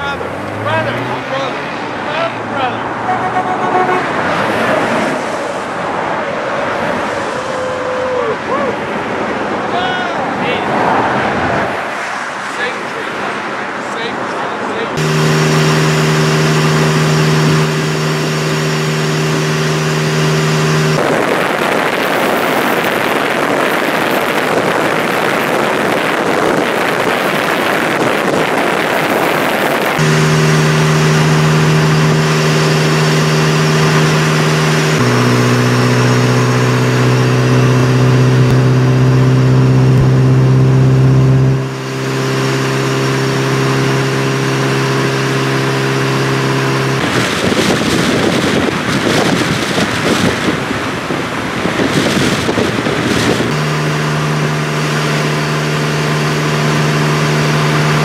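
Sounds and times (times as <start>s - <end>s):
motorcycle engine cruising: 0.0s - 4.4s, 15.0s - 58.0s
road noise: 0.0s - 58.0s
wind rushing: 47.0s - 53.6s.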